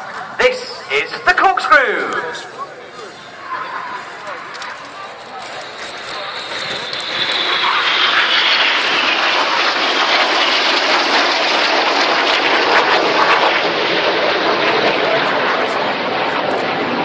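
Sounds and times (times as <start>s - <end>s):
jets flying past: 5.5s - 17.0s.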